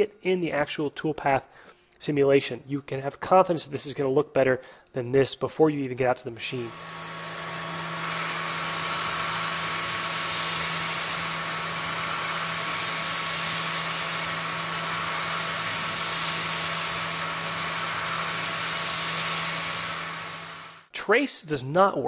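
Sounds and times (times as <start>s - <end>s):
milling machine spindle hum: 6.4s - 20.9s.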